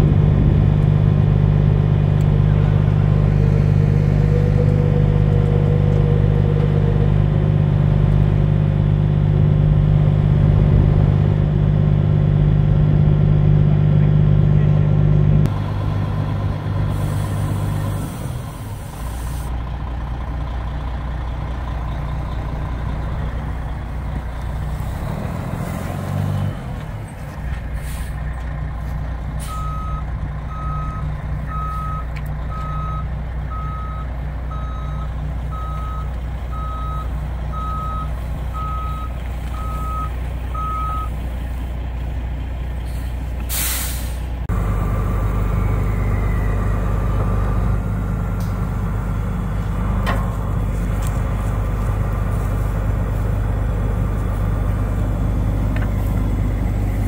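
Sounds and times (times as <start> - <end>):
diesel engine idling: 0.0 - 57.0
air brakes hissing: 16.8 - 19.5, 27.7 - 28.3, 42.8 - 44.4
backup alarm beeping: 29.5 - 41.1.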